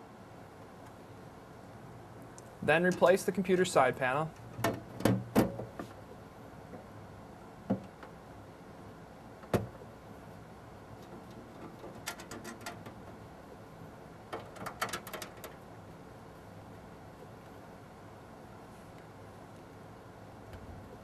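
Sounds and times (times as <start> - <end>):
metal panel sliding and rattling: 11.1 - 13.0.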